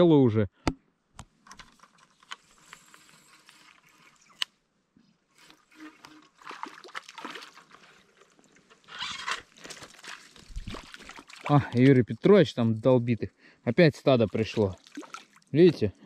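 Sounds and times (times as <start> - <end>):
irregular crackle: 1.6 - 4.5
shallow water trickling: 5.3 - 16.0.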